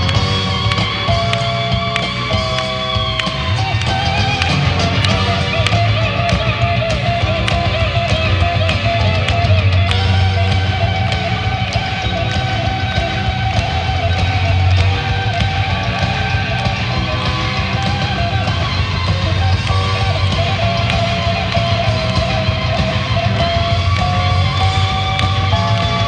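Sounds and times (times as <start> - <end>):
drums with cymbal ticks: 0.0 - 26.0
electric bass: 0.0 - 26.0
electric guitar lead: 0.0 - 26.0
keyboards: 0.0 - 26.0.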